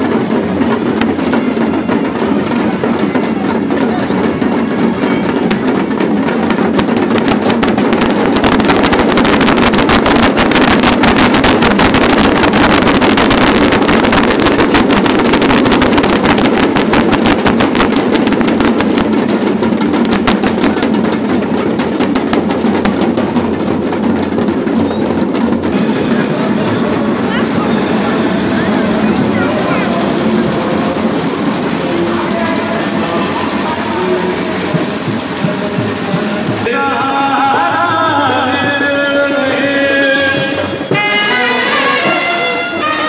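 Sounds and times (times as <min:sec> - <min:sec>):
drums playing fast rhythm: 0:00.0 - 0:42.2.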